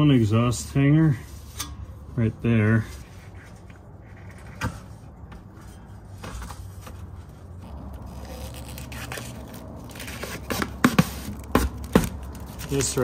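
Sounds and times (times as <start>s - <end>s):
plastic film peeling and crackling: 6.8s - 13.0s.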